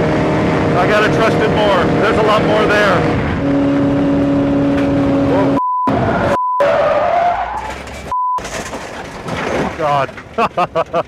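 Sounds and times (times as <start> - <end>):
race car engine revving: 0.0 - 6.4
car tires skidding: 4.8 - 11.0
censor bleeps: 5.6 - 6.7, 8.1 - 8.4.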